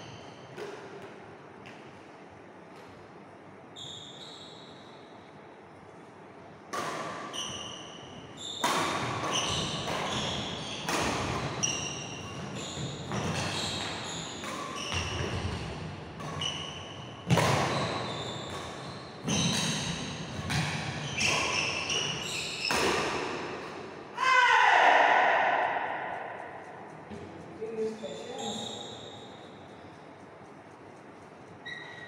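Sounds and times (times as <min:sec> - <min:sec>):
rackets hitting shuttlecock: 0:06.7 - 0:24.0.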